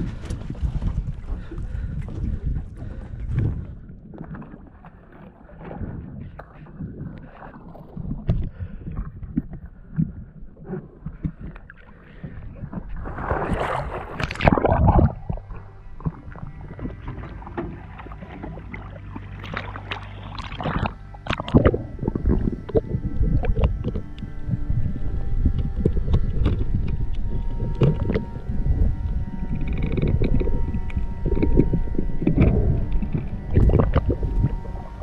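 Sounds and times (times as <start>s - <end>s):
water sloshing around a boat: 0.0s - 35.0s
motor humming: 14.1s - 35.0s.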